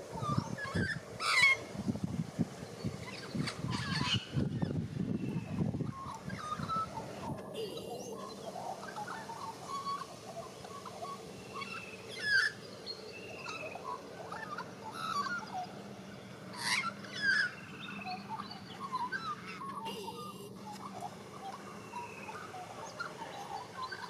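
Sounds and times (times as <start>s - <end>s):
magpie warbling: 7.6s - 10.1s, 19.1s - 21.1s.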